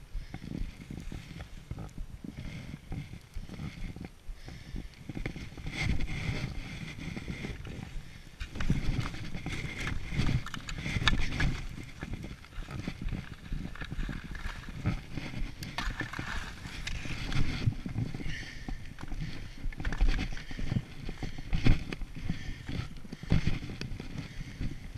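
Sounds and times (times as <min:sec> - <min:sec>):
low rumbles on microphone: 0:00.0 - 0:24.9.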